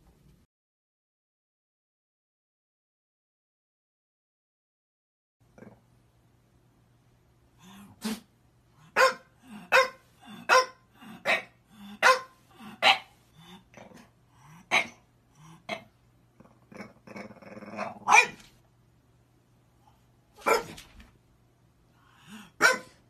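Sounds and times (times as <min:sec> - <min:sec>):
dog growling: 0:05.5 - 0:05.9, 0:13.4 - 0:18.1
dog barking: 0:08.8 - 0:13.2, 0:17.8 - 0:18.5, 0:20.4 - 0:20.9, 0:22.4 - 0:23.0.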